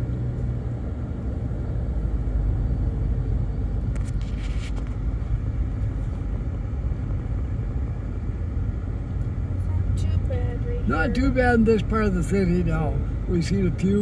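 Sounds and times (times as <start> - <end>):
car road and engine rumble: 0.0 - 14.0.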